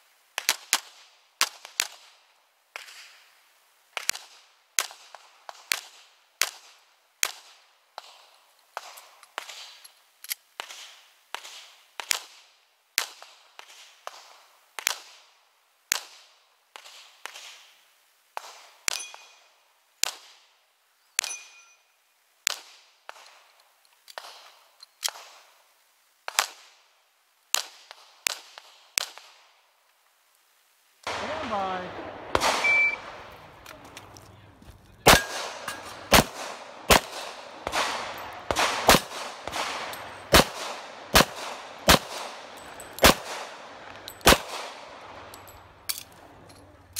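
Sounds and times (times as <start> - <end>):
pistol shots with echo: 31.1 - 34.3, 35.0 - 45.9.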